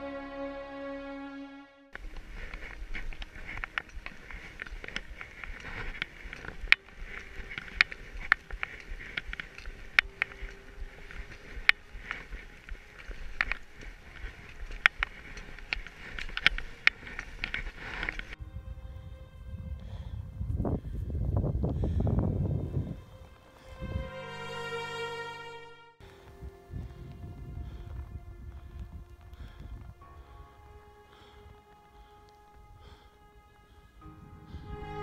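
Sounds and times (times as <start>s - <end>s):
sharp ski binding clicks: 2.0s - 18.4s
skis swishing and crunching snow: 2.0s - 18.4s, 26.1s - 30.4s.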